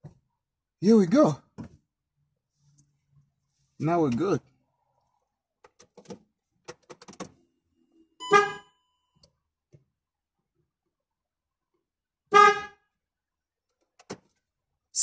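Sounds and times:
car horn short beeps: 0:08.2 - 0:08.8, 0:12.3 - 0:12.8.

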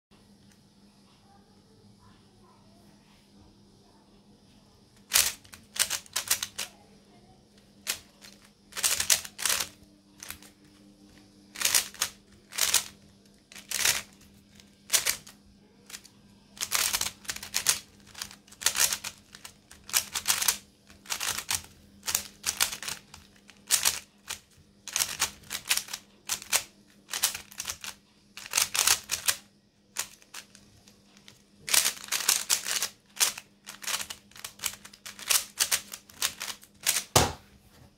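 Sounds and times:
puzzle cube layers clicking: 0:05.1 - 0:06.7, 0:07.8 - 0:10.5, 0:11.6 - 0:15.3, 0:15.9 - 0:29.4, 0:31.2 - 0:37.1.

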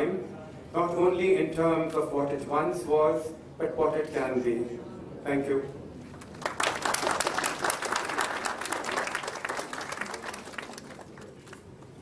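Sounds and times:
audience applauding: 0:06.2 - 0:11.6.

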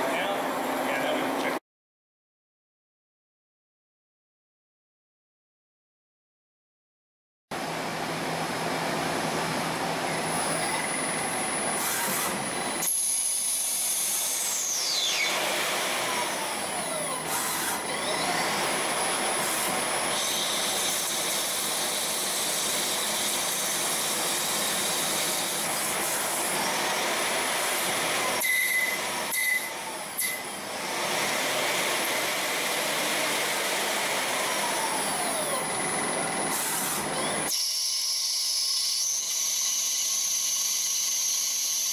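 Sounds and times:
lathe cutting noise: 0:09.0 - 0:41.9.

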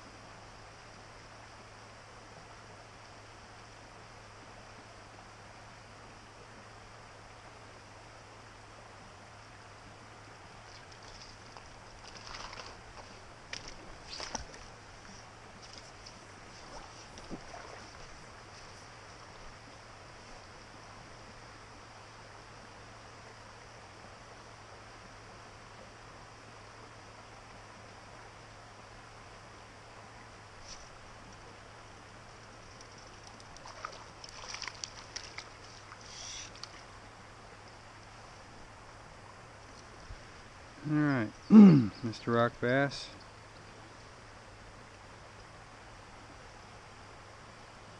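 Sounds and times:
flowing creek water: 0:00.0 - 0:47.9
small water splashes and drips: 0:10.6 - 0:18.7, 0:32.6 - 0:37.0
fish splashing: 0:10.7 - 0:18.2, 0:32.9 - 0:36.9.

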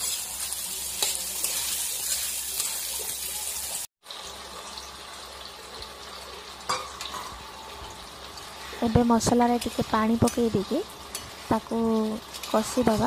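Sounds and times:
spatula stirring: 0:00.0 - 0:03.2
food sizzling in hot oil: 0:00.0 - 0:13.0.

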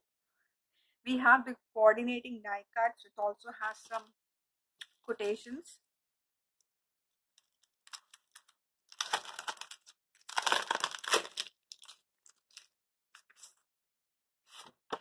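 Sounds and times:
cellophane crinkling: 0:07.6 - 0:13.5.

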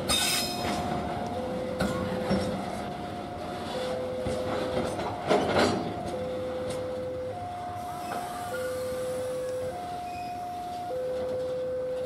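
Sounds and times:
freight train rolling on rails: 0:00.0 - 0:12.0
two-tone electronic warning signal: 0:06.1 - 0:12.0.

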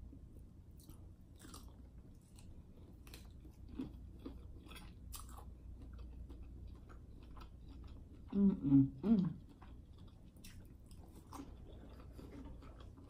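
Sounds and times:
wet chewing: 0:09.4 - 0:13.0.

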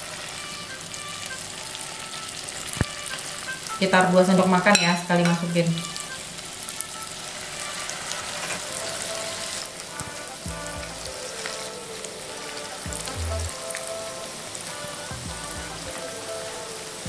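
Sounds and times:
batter sizzling in hot oil: 0:00.0 - 0:10.4, 0:11.0 - 0:17.0
background music with bass: 0:10.0 - 0:11.9, 0:12.5 - 0:16.8.

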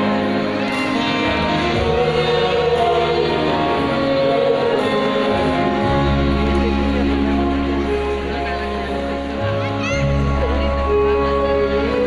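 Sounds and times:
mixed choir singing: 0:00.0 - 0:07.3.

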